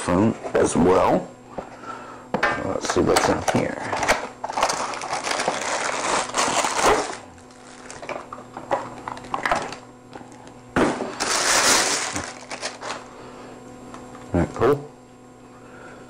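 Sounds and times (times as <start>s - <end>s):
cardboard and plastic crinkling: 3.1s - 9.8s, 11.0s - 13.1s.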